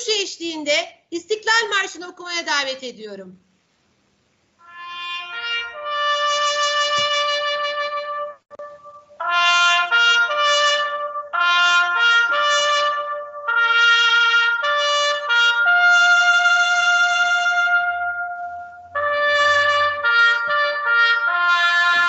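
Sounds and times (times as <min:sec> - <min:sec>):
solo trumpet call: 0:04.6 - 0:22.0.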